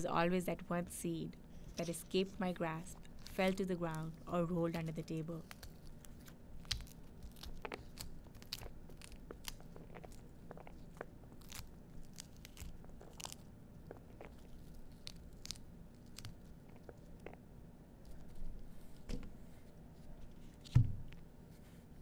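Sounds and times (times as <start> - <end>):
faint low hum: 0.0 - 22.0
pomegranate being pulled apart: 2.9 - 21.2.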